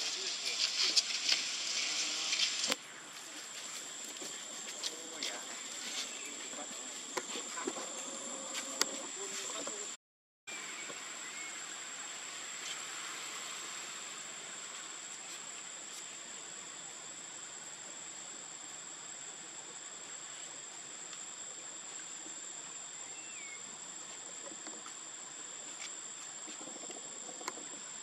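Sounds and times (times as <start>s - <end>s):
constant hiss: 0.0s - 28.0s
insects buzzing: 0.0s - 28.0s.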